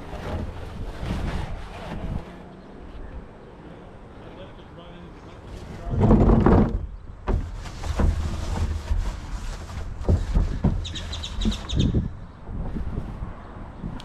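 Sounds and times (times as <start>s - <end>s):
wind rumbling on microphone: 0.0s - 3.6s, 5.5s - 14.0s
rag rubbing plastic bin: 5.5s - 12.1s
bird chirping: 10.8s - 12.5s.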